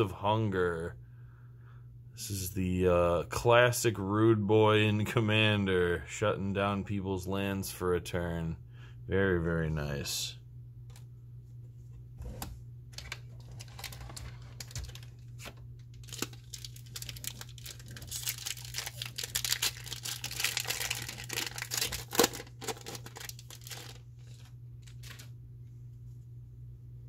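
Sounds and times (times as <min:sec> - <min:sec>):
foil wrapper tearing and crinkling: 0:13.0 - 0:25.3.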